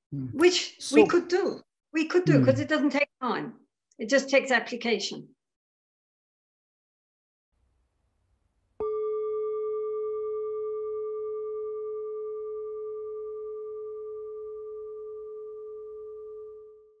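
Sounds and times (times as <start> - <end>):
singing bowl ringing: 8.8 - 17.0.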